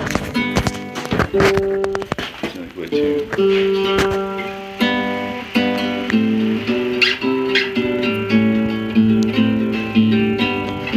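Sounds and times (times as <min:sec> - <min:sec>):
classical guitar plucked chords: 0:00.0 - 0:10.9.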